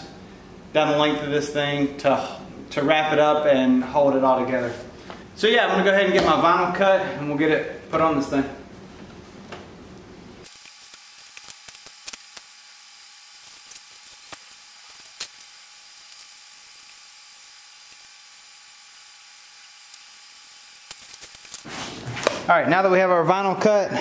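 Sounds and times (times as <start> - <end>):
vinyl being cut and handled: 10.4 - 12.5, 13.4 - 18.4, 19.6 - 22.5.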